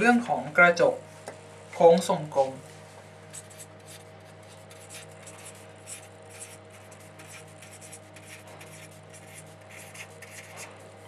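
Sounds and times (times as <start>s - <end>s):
faint steady hum: 0.0s - 11.0s
marker scratching on paper: 3.3s - 10.7s.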